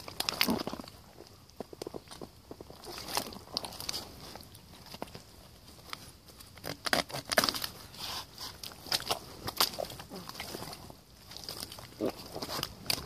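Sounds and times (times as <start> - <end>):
wet mud squelching: 7.9 - 13.0.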